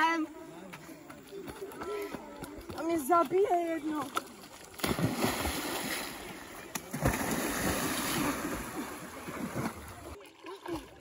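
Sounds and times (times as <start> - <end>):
water splashing and churning: 2.9 - 11.0
heavy splash: 4.7 - 11.0.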